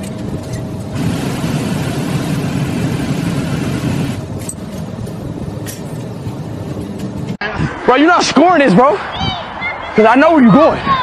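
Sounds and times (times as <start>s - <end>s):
machine blowing air: 0.9s - 4.3s.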